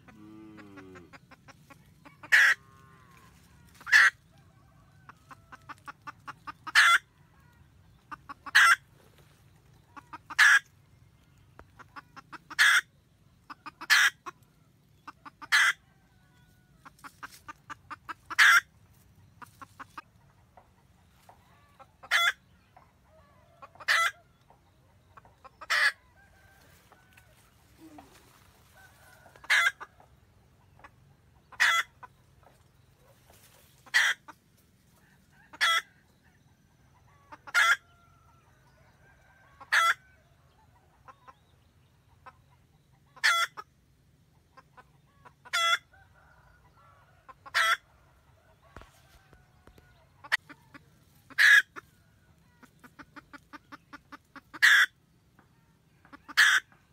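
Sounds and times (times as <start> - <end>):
hen cackling: 0.0 - 10.8, 11.6 - 18.7, 21.2 - 22.4, 23.1 - 24.3, 25.1 - 30.1, 30.7 - 32.5, 33.3 - 34.4, 35.2 - 36.0, 37.0 - 38.0, 39.4 - 40.0, 43.0 - 43.7, 44.5 - 47.9, 50.2 - 55.0, 56.0 - 56.8.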